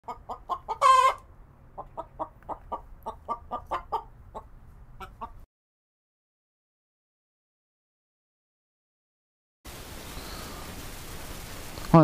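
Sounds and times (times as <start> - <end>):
hen clucking: 0.0 - 5.5
hen squawking: 0.1 - 1.2.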